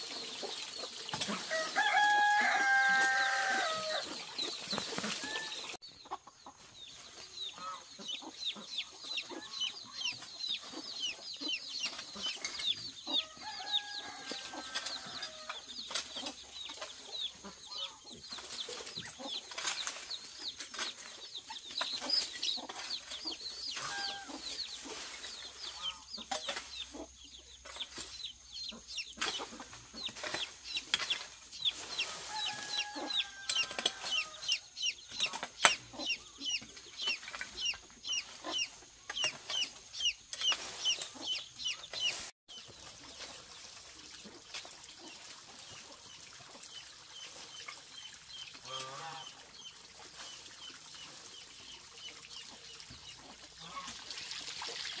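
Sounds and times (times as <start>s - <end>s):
chickens clucking: 0.0s - 55.0s
chicks cheeping: 0.1s - 42.8s.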